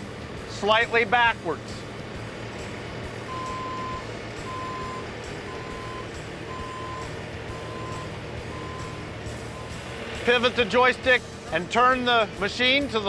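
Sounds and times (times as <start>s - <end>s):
diesel engine running: 0.0s - 13.0s
backup alarm beeping: 3.3s - 9.8s.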